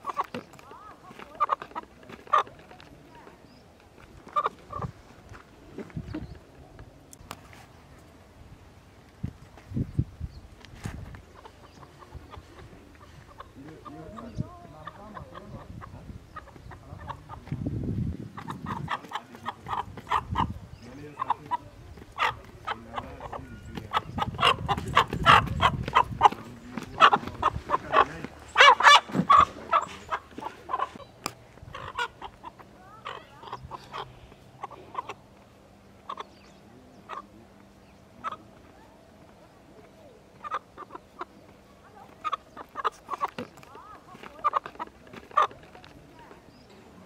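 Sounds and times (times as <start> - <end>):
rooster clucking and squawking: 4.3 - 5.0, 11.3 - 35.3, 38.2 - 38.5, 40.3 - 41.4, 42.0 - 45.6.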